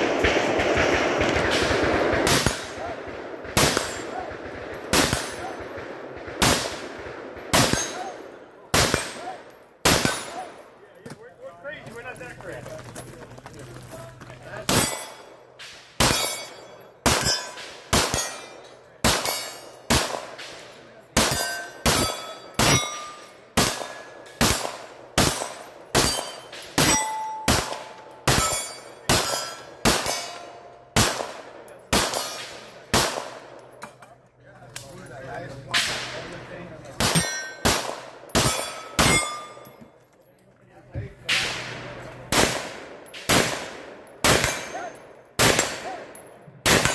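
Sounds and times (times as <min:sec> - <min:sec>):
steel targets ringing: 0:14.7 - 0:15.4, 0:16.0 - 0:19.8, 0:21.2 - 0:24.6, 0:25.2 - 0:31.0, 0:37.0 - 0:39.8, 0:44.2 - 0:45.8.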